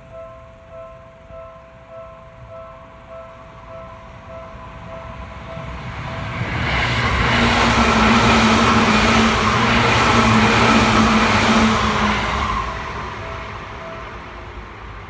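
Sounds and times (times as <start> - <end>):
level crossing warning bell: 0.0 - 10.2
electric train running on rails: 0.0 - 15.0.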